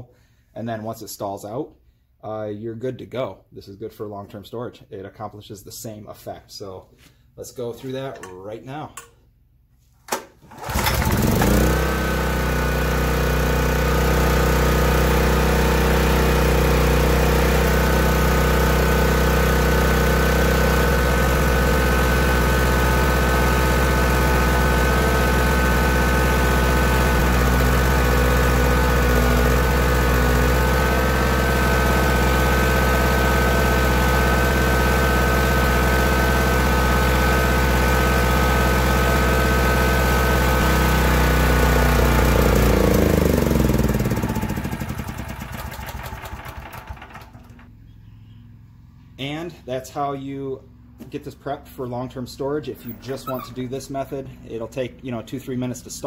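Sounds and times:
generator engine pull-started: 0:10.1 - 0:47.8, 0:52.7 - 0:53.9.

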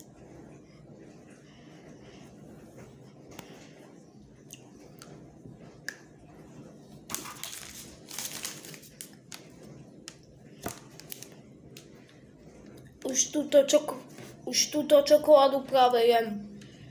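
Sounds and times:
wrapper crinkling: 0:07.1 - 0:09.5, 0:10.6 - 0:11.4.

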